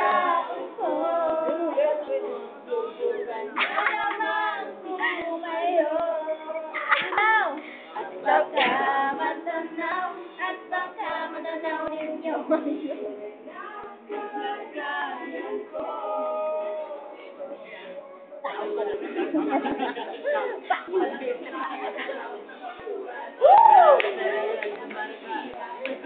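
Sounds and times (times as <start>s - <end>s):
teenagers shouting and whooping: 23.4s - 24.5s.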